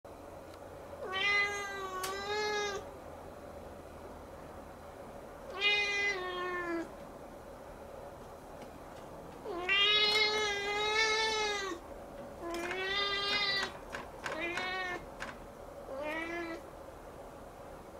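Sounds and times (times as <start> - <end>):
kitten meowing: 14.4 - 15.0, 15.9 - 16.6.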